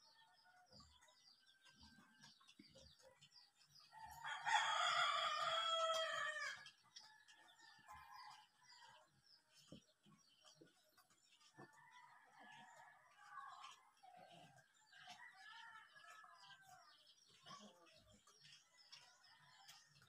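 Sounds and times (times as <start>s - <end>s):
small birds chirping: 0.0s - 20.0s
rooster crowing: 4.2s - 6.6s.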